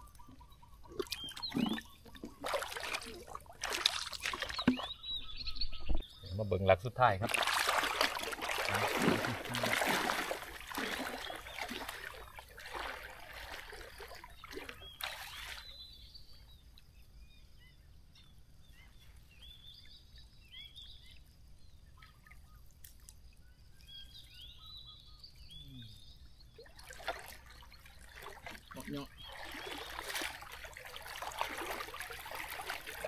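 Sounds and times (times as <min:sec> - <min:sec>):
legs wading through water: 0:00.0 - 0:05.4, 0:07.2 - 0:15.9, 0:26.5 - 0:33.0
small birds chirping: 0:00.0 - 0:33.0.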